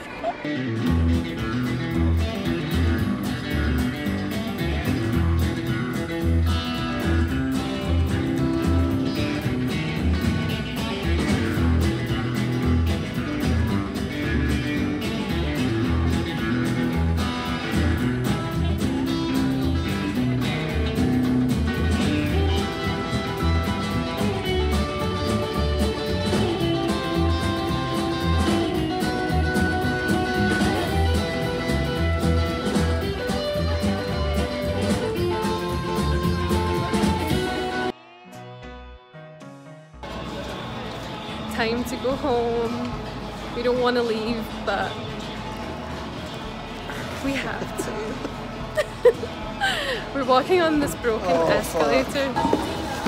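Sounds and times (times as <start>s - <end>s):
electric guitar: 0.0s - 39.3s
acoustic guitar: 0.0s - 53.0s
upright bass: 0.4s - 37.9s, 46.9s - 53.0s.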